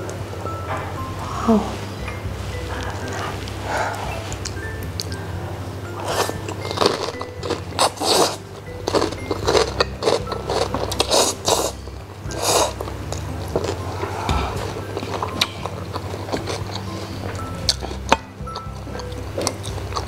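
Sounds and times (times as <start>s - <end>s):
mouth eating noises: 0.0s - 20.0s
soft background music: 0.0s - 20.0s
slurping noodles: 5.9s - 20.0s.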